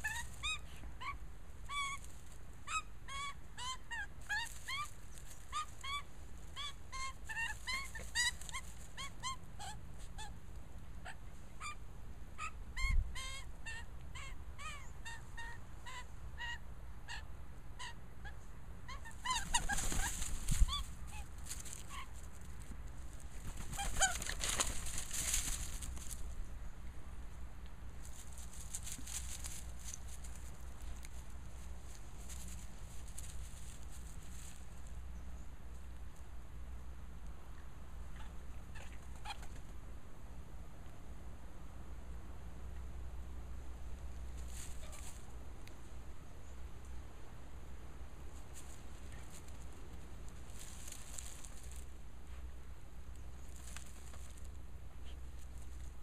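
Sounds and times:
magpie squawking: 0.0 - 2.0, 18.9 - 22.1, 23.7 - 24.4
rustling handling noise: 19.4 - 26.4, 28.0 - 35.0, 48.3 - 52.5, 53.1 - 54.6.

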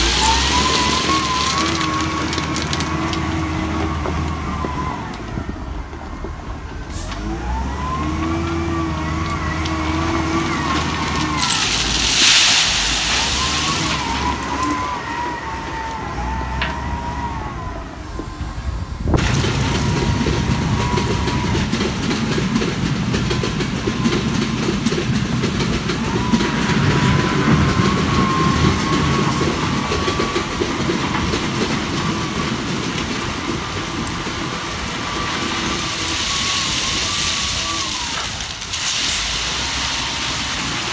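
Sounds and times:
stones crunching against bucket: 0.0 - 4.4, 9.6 - 14.8
stones pouring from bucket: 0.0 - 4.7, 9.2 - 14.8, 31.3 - 40.9
diesel engine under load: 0.0 - 40.9.

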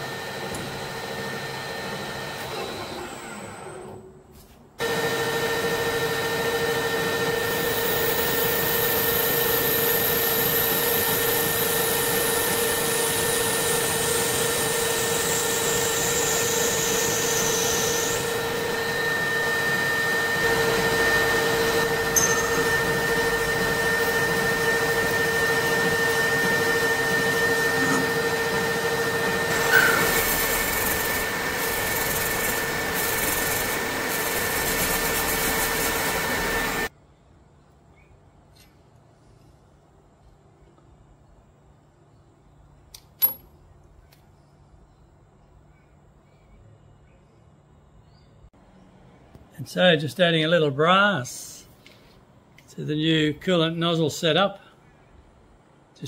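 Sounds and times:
metal lathe whining: 4.8 - 36.9.

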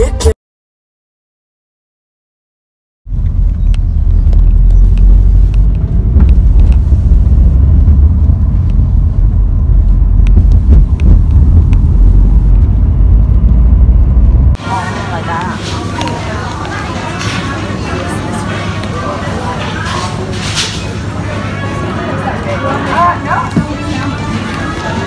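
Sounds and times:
car road and engine rumble: 3.1 - 14.6.

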